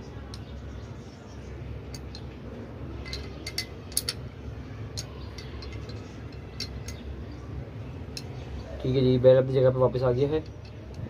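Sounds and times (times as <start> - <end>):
metallic clicks of pistol parts: 1.9 - 2.3, 3.1 - 4.2.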